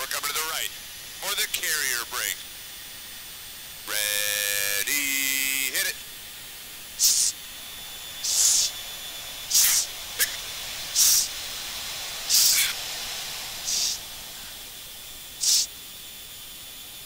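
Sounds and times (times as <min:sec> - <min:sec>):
steady intercom hiss: 0:00.0 - 0:02.6, 0:03.8 - 0:06.1, 0:06.9 - 0:07.4, 0:08.1 - 0:11.4, 0:13.6 - 0:14.6, 0:15.3 - 0:15.8.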